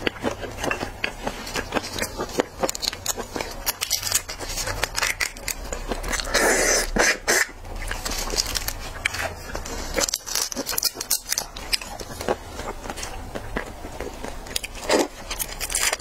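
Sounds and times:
rustling crackle: 0:00.0 - 0:16.0
shrimp shell crackling as peeled: 0:01.6 - 0:12.4, 0:14.2 - 0:16.0.

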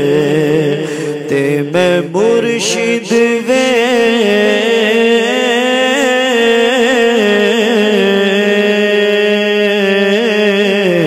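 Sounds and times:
person singing devotional song: 0:00.0 - 0:11.0.

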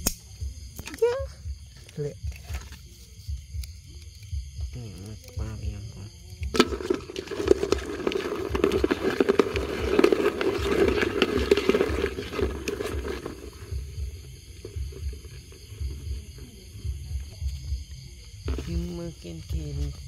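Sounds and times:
bucket rattling and scraping: 0:02.3 - 0:02.9, 0:06.4 - 0:17.7, 0:18.5 - 0:20.0
knock on plastic bucket: 0:06.4 - 0:16.3, 0:18.5 - 0:20.0.

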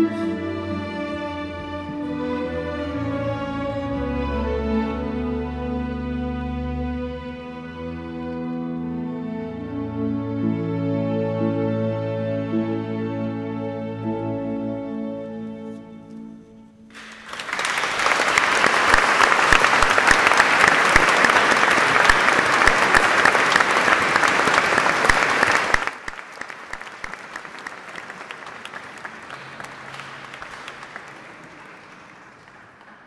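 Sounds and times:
audience applauding: 0:16.9 - 0:33.0.

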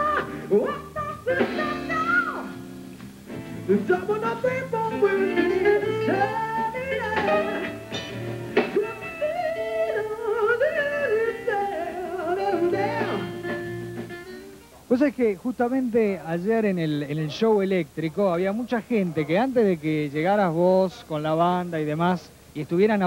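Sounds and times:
man singing with vibrato: 0:00.0 - 0:02.6, 0:03.6 - 0:08.0, 0:08.7 - 0:13.7
plucked guitar and bass: 0:12.5 - 0:14.6.

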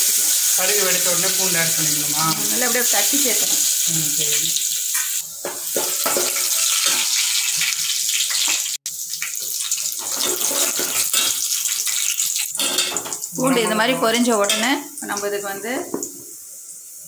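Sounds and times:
garlic sizzling in hot oil: 0:00.0 - 0:17.0
oil crackling and popping: 0:02.4 - 0:13.4.

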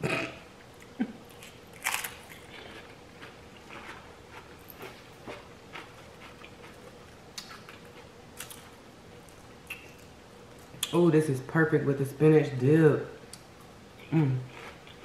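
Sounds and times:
chip crunching: 0:00.8 - 0:10.1.

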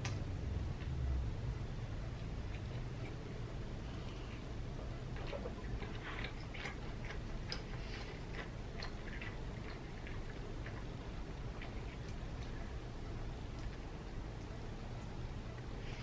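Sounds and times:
steady low hum: 0:00.0 - 0:16.0
chewing with wet mouth clicks: 0:05.1 - 0:12.6.

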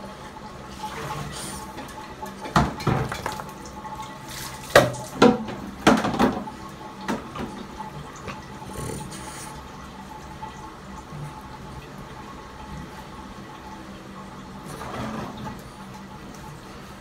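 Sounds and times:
water splashing in a basin: 0:00.7 - 0:08.6.

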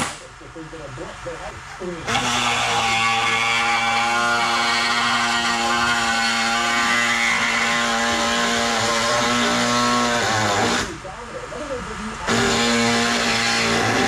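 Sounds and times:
power cutting tool cutting metal: 0:02.0 - 0:11.0, 0:12.2 - 0:14.0.

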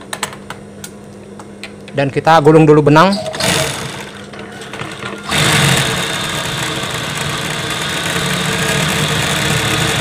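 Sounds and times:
sewing machine humming and whining: 0:03.3 - 0:10.0.

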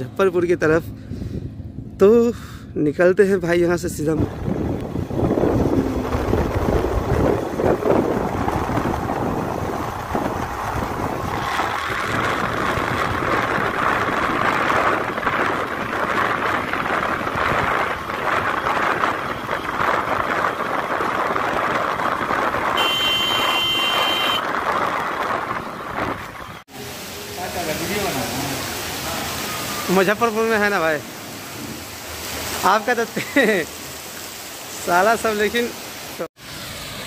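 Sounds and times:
road noise on wet highway: 0:00.0 - 0:37.0
wind rush: 0:00.6 - 0:02.4, 0:03.3 - 0:26.7
motorbike engine rumbling: 0:04.3 - 0:26.7
vehicle horn: 0:22.8 - 0:24.5.

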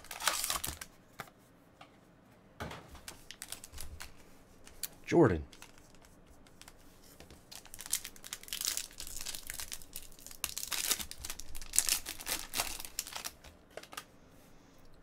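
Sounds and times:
foil wrapper tearing and crinkling: 0:00.0 - 0:00.9, 0:03.2 - 0:04.1, 0:07.5 - 0:14.1.

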